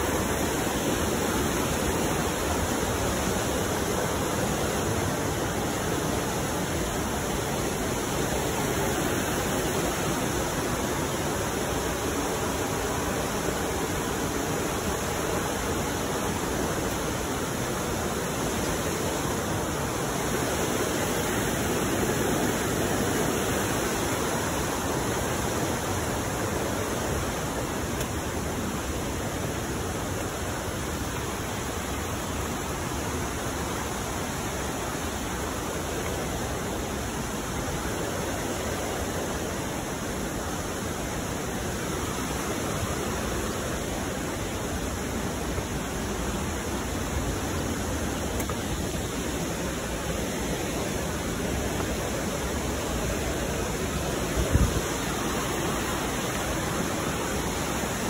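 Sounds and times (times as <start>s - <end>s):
stream water rushing: 0.0s - 58.0s.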